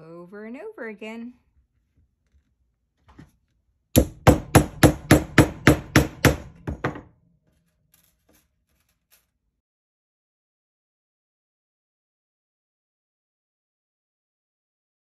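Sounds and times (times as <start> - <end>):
hammer tapping a nail: 4.0 - 7.0.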